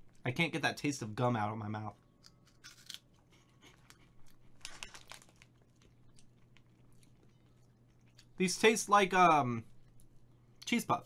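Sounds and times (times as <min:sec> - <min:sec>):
low electrical hum: 0:00.0 - 0:11.0
person chewing crunchy snack: 0:02.2 - 0:08.4.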